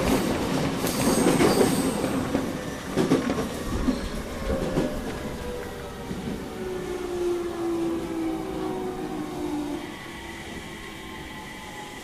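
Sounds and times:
rail joint clicks: 0:00.0 - 0:06.4
train wheels rumbling on rails: 0:00.0 - 0:12.0.

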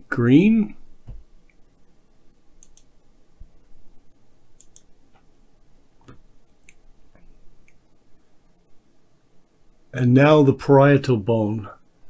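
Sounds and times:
low steady hiss: 0:00.0 - 0:12.0
faint clicking: 0:02.6 - 0:02.9, 0:04.6 - 0:05.3, 0:06.0 - 0:07.8.

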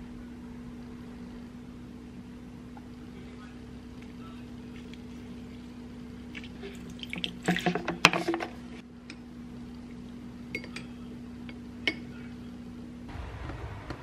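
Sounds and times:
steady low hum: 0:00.0 - 0:14.0
juice dripping: 0:02.7 - 0:08.2.

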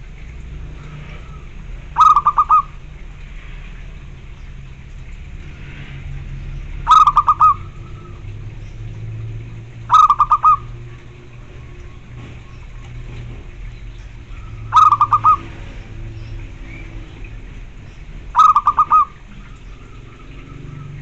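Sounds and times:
dove cooing: 0:01.1 - 0:02.8, 0:06.8 - 0:08.2, 0:09.8 - 0:12.3, 0:14.4 - 0:15.8, 0:18.3 - 0:21.0.

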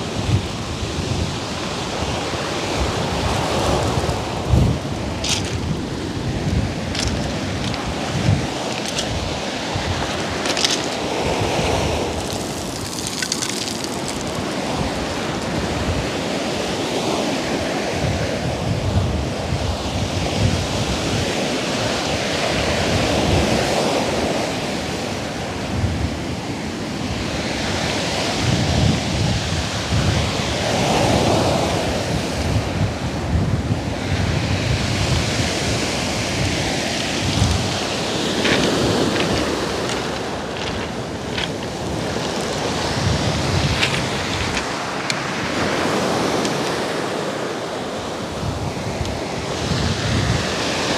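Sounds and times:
wind buffeting microphone: 0:00.0 - 0:50.9
surf breaking on pebble beach: 0:00.2 - 0:18.2, 0:35.0 - 0:50.9.

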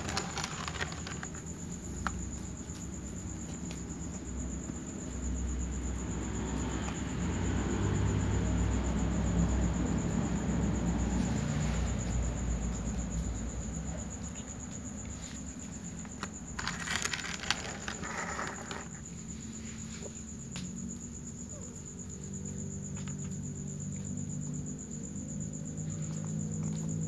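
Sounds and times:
cat crunching dry kibble: 0:00.0 - 0:01.5, 0:16.2 - 0:18.9
rustling: 0:00.0 - 0:03.0, 0:14.4 - 0:20.2
high insect trill: 0:00.0 - 0:27.0.

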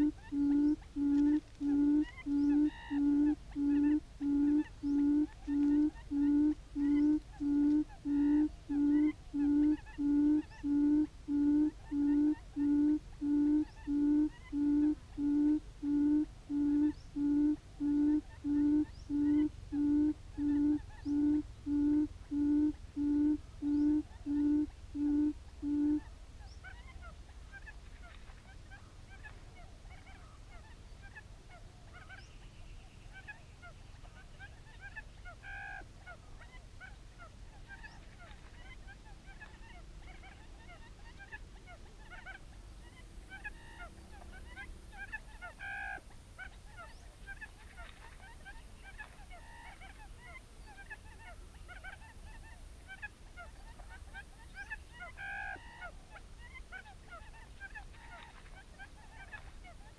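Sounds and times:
steady high hiss: 0:00.0 - 0:26.0
quail call from speaker: 0:00.0 - 0:28.2.

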